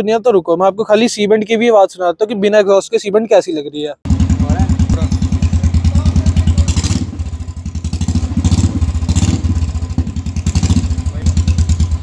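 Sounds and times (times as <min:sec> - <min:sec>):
motorcycle engine open exhaust: 0:04.1 - 0:12.0.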